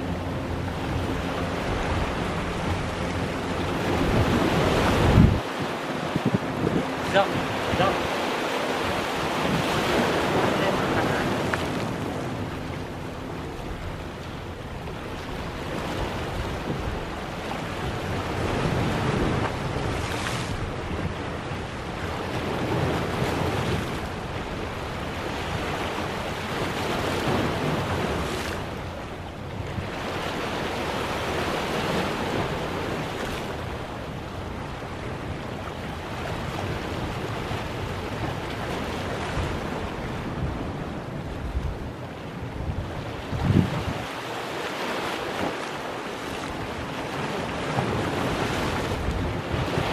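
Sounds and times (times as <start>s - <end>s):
waves breaking over rocks: 0.0s - 49.9s
wind on microphone: 0.0s - 49.9s.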